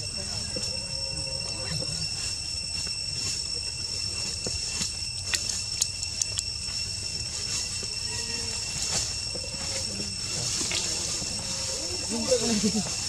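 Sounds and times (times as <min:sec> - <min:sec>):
high-pitched insect drone: 0:00.0 - 0:13.0
sharp clicks: 0:05.2 - 0:06.5.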